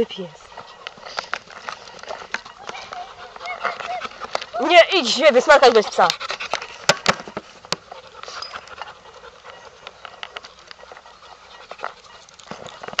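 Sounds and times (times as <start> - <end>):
dog panting: 0.0 - 13.0
small clicks and rustles: 11.7 - 13.0.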